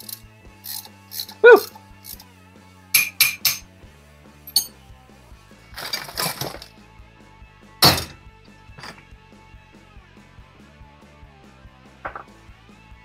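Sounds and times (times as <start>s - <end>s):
metal parts clinking: 0.0s - 1.4s, 2.0s - 2.3s, 3.0s - 3.7s, 4.5s - 4.8s, 5.8s - 6.7s, 7.8s - 9.1s
metal parts rattling: 0.0s - 1.4s, 2.0s - 2.2s, 4.5s - 4.7s, 5.8s - 6.7s, 7.8s - 8.2s, 8.8s - 9.1s
background music: 0.0s - 13.0s
metal clank: 3.0s - 3.7s, 5.8s - 6.7s, 7.8s - 8.2s, 8.8s - 9.1s.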